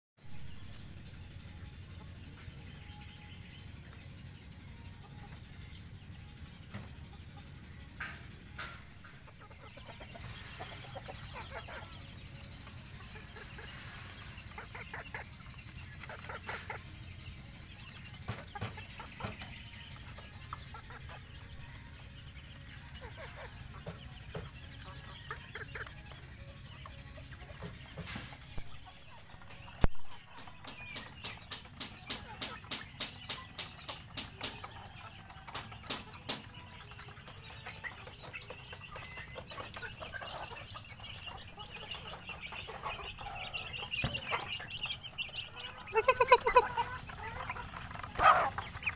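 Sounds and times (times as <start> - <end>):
chickens clucking: 0.2 - 48.9
chickens pecking at bamboo trough: 29.2 - 48.9.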